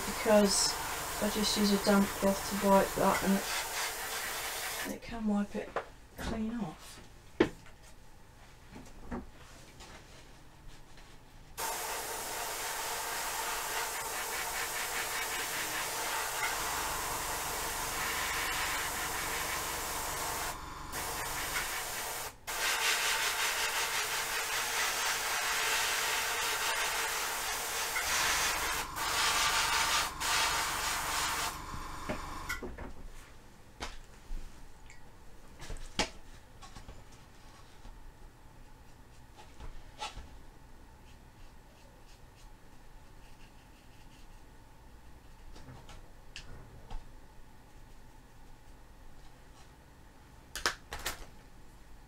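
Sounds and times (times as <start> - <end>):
hairspray spraying hiss: 0.0 - 4.9, 11.6 - 32.5.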